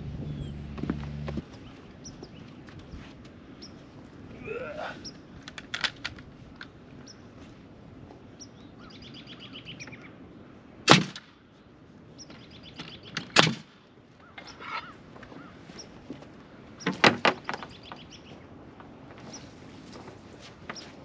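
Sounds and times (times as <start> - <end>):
birds chirping: 0.0 - 5.5, 6.6 - 10.8, 11.4 - 21.0
pneumatic nailer firing: 13.2 - 13.7.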